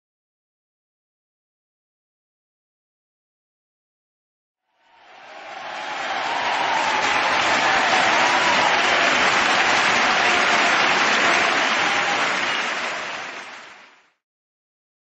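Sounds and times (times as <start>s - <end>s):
audience applauding: 4.7s - 14.2s.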